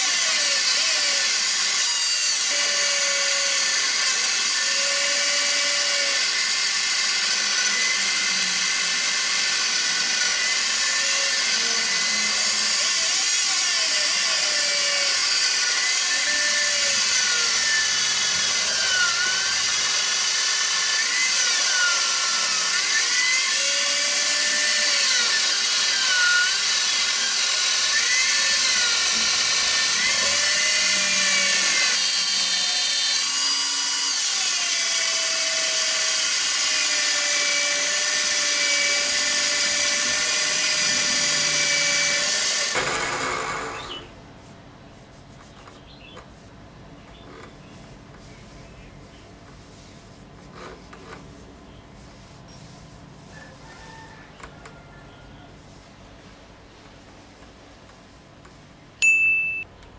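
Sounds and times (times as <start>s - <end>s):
electric drill running: 0.0s - 44.1s.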